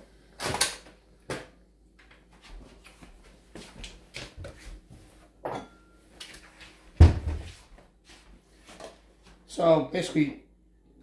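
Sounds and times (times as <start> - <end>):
kitchen knocks and clatter: 5.4 - 5.9.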